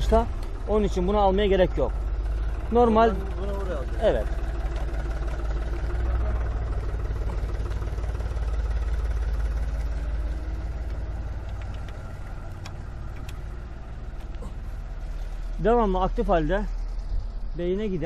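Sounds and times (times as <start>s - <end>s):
tractor engine idling: 0.0s - 18.0s
light metal clicks: 9.7s - 13.5s.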